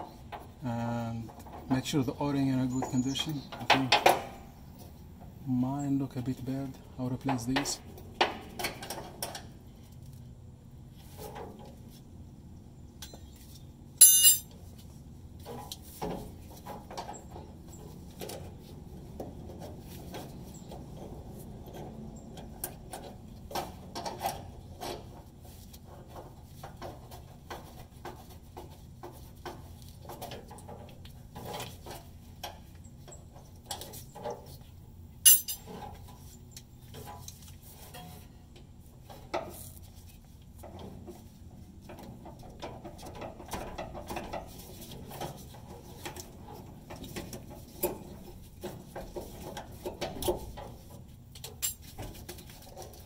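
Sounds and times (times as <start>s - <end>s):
sharp metallic clinks: 14.0s - 14.5s, 35.2s - 35.6s
metal tools clinking on pipes: 14.0s - 14.6s, 35.2s - 35.8s, 51.5s - 51.9s.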